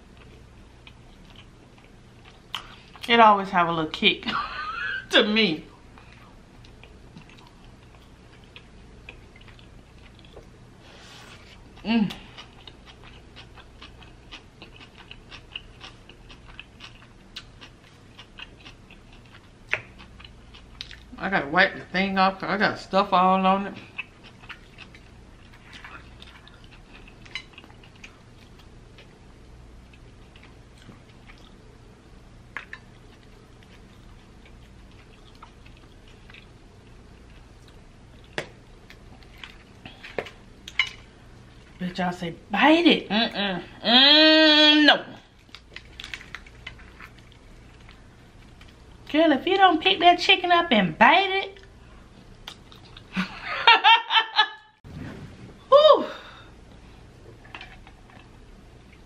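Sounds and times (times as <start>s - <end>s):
wet chewing crunches: 6.0s - 21.2s, 23.8s - 31.7s, 32.5s - 41.6s, 45.2s - 49.1s, 51.6s - 53.2s.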